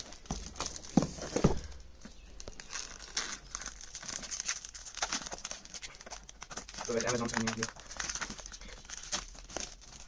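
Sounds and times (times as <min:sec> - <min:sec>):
packaging scraping and crinkling: 0:02.4 - 0:10.0.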